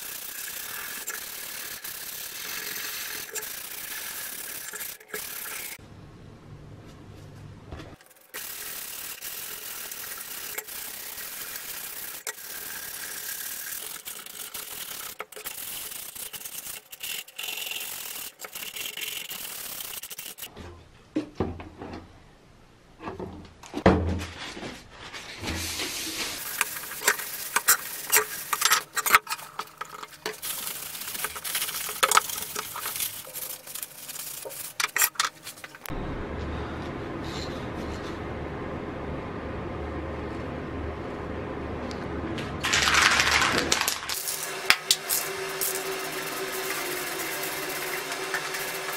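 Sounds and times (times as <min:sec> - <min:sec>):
electric sander on metal: 0:00.0 - 0:05.8, 0:44.3 - 0:48.9
low hum: 0:35.7 - 0:42.7.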